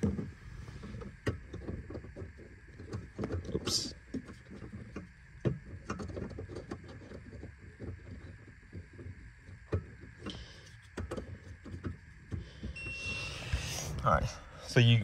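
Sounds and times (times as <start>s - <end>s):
low rumble: 0.0s - 2.4s, 13.1s - 15.0s.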